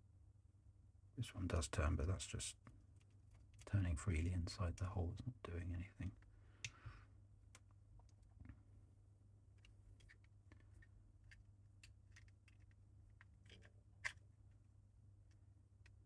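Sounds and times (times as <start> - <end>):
plastic puzzle box clicking: 9.6 - 14.2.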